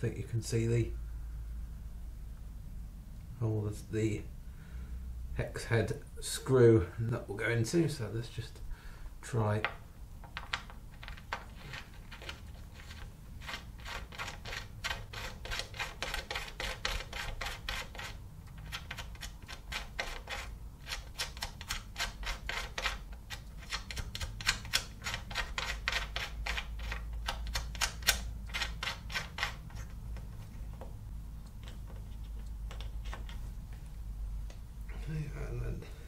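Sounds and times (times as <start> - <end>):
rapid clicking of screw fastening: 10.4 - 30.8, 31.4 - 33.4.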